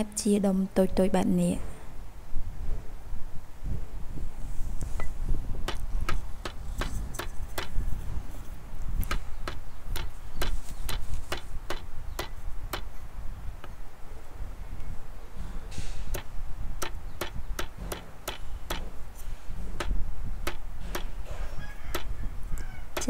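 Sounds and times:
knife chopping on wooden block: 0:09.0 - 0:12.9, 0:16.1 - 0:19.0, 0:19.8 - 0:22.1.

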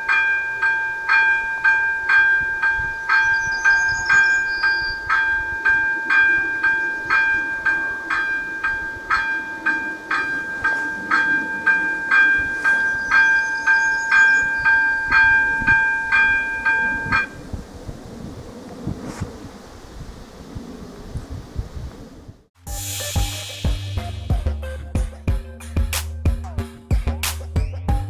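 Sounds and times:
level crossing warning bell: 0:00.0 - 0:17.4.

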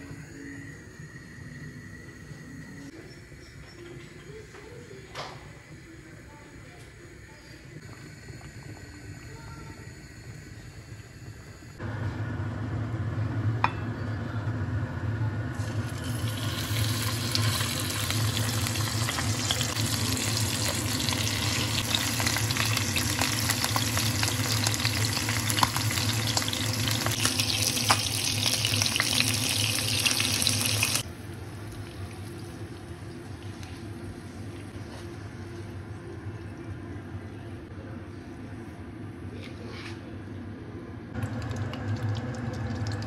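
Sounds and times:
fish roe sizzling in oil: 0:15.6 - 0:31.0.

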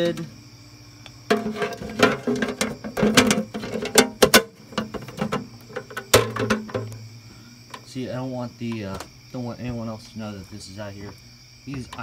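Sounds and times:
container and lid clattering: 0:01.3 - 0:07.0.

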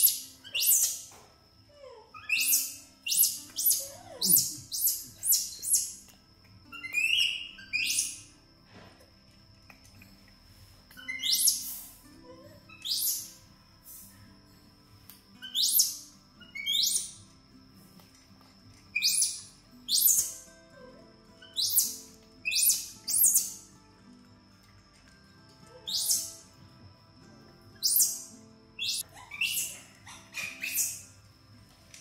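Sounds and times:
bird chirping: 0:00.0 - 0:01.1, 0:02.2 - 0:08.3, 0:10.9 - 0:12.0, 0:12.6 - 0:13.4, 0:15.4 - 0:17.3, 0:18.9 - 0:20.4, 0:21.4 - 0:23.7, 0:25.8 - 0:26.5, 0:27.8 - 0:31.2
faint background music: 0:00.0 - 0:32.0.

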